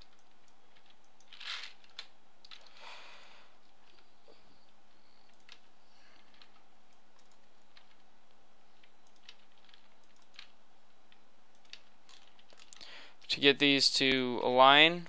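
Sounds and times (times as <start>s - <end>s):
keyboard and mouse clicks: 0.0s - 2.8s, 5.2s - 8.0s, 8.8s - 12.9s
low electrical hum and hiss: 0.0s - 15.0s.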